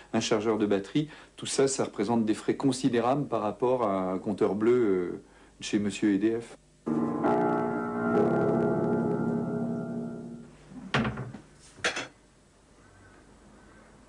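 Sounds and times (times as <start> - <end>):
piano note cluster: 6.9 - 10.6.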